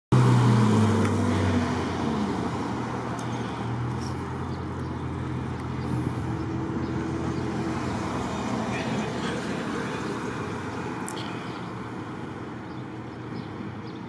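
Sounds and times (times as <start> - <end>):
cars passing: 0.1 - 14.0.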